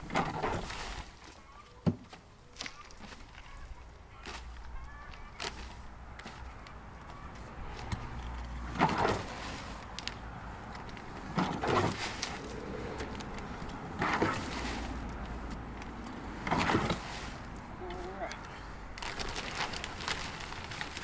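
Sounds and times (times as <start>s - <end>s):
shovel scraping and soil rushing: 7.9s - 9.9s, 11.2s - 18.4s.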